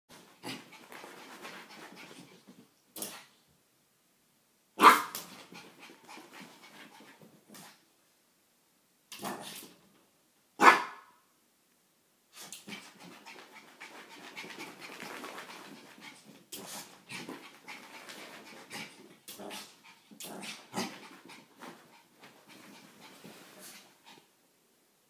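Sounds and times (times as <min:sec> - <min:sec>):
puppy panting: 0:12.7 - 0:24.3.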